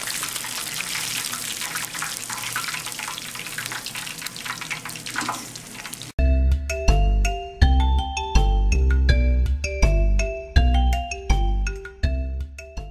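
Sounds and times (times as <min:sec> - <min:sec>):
oil sizzling and crackling in pan: 0:00.0 - 0:06.2.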